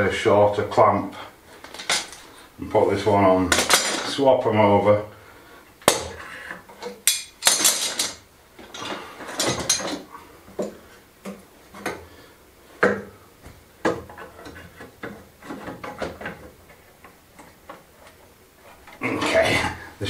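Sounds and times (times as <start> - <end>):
metal clamps clanking and rattling: 1.6 - 2.2, 3.5 - 4.2, 6.7 - 10.1.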